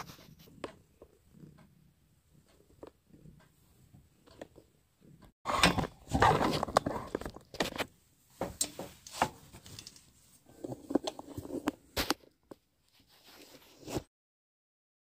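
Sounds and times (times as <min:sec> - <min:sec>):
rubbing and rustling: 0:00.0 - 0:01.2, 0:05.8 - 0:14.1
clicks and knocks of handling: 0:05.6 - 0:12.7.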